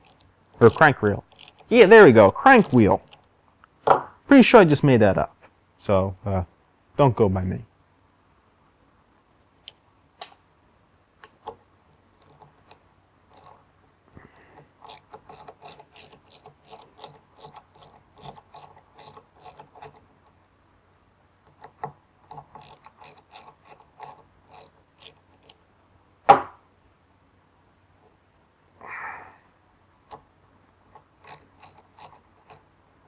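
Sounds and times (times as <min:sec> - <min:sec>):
ratchet wrench clicking: 0:00.0 - 0:01.7, 0:14.8 - 0:20.0, 0:22.3 - 0:25.6, 0:31.2 - 0:32.6.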